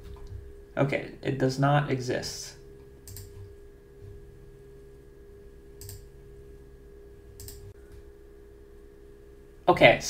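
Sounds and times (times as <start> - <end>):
steady low hum: 0.0 - 10.0
faint computer clicks: 7.4 - 8.0.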